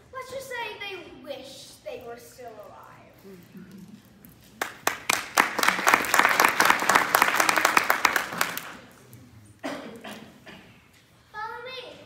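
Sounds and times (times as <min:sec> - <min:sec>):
audience applauding: 0:04.5 - 0:09.0.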